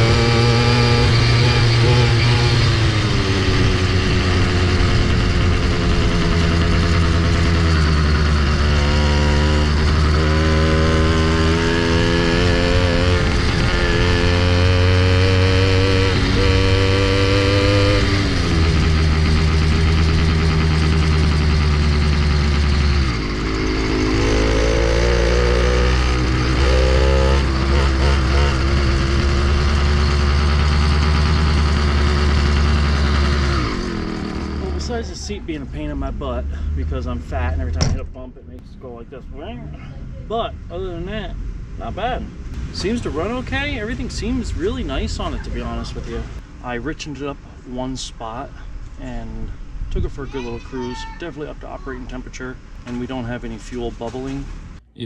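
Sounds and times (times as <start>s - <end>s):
two-stroke bicycle engine revving: 0.0s - 35.0s.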